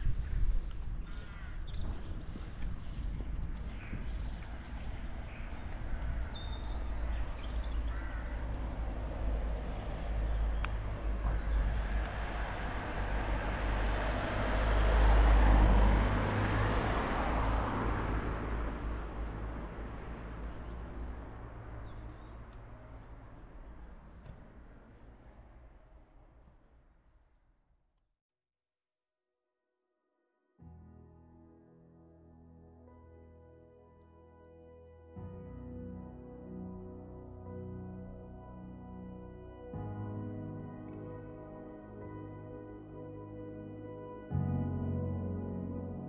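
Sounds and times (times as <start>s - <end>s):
bird calls: 0.1s - 9.5s
car passing: 2.6s - 26.9s.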